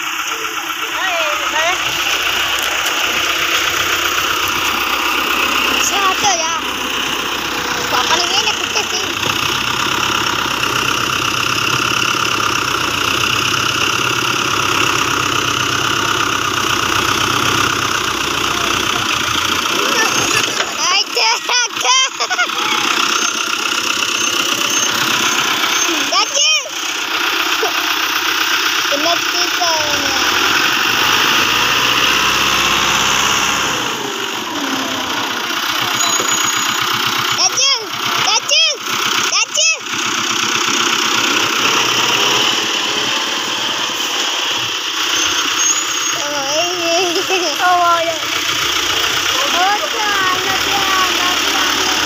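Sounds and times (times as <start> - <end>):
machinery engine running: 0.0 - 52.0.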